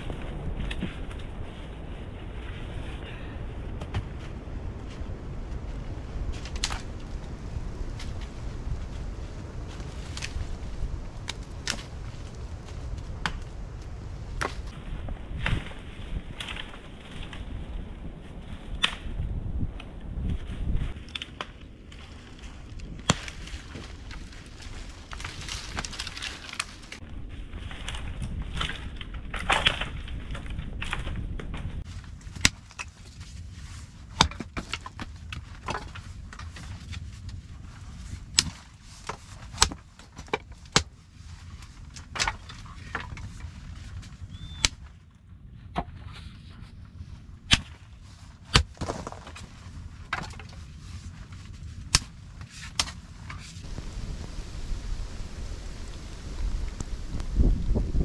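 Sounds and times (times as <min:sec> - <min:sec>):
rustling: 0:20.2 - 0:45.0.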